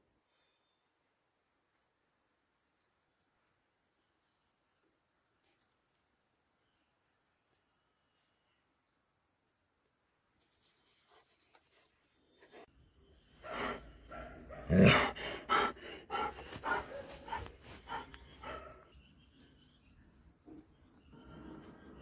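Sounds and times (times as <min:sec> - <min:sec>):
dog vocalizing: 0:14.6 - 0:18.6.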